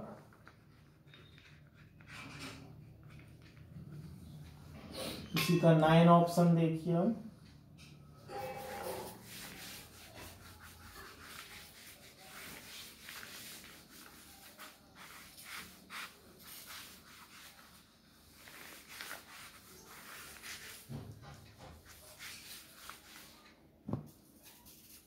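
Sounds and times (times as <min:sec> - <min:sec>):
cloth rubbing on chalkboard: 0:08.3 - 0:25.0.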